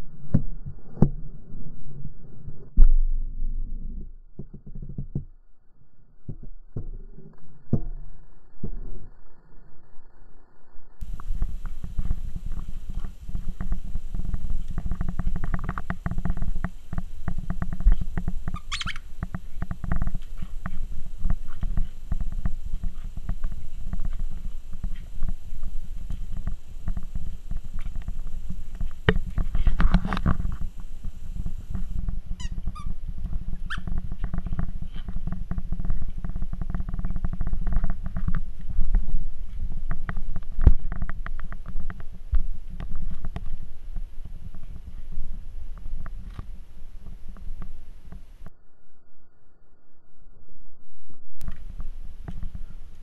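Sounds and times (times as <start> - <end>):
puppy squeak: 18.5 - 19.0, 33.7 - 33.9.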